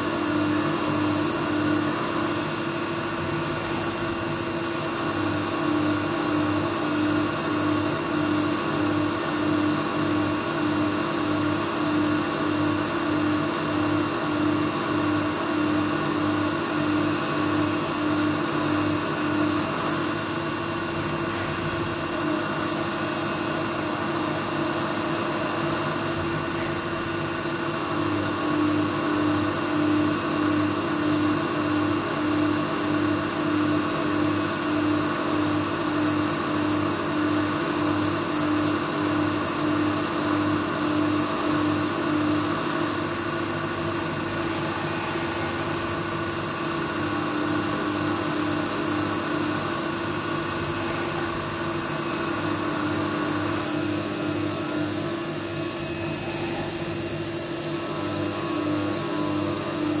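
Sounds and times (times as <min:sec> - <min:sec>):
milling machine cutting metal: 0:00.0 - 1:00.0
coolant spray hiss: 0:44.2 - 0:56.1.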